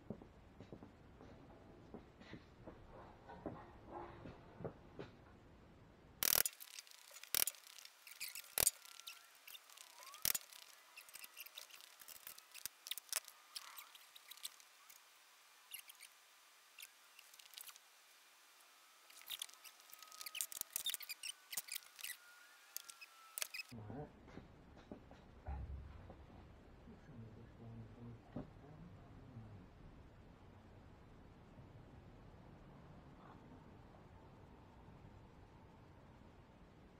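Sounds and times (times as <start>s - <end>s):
sharp clicks and light taps: 6.2s - 15.0s.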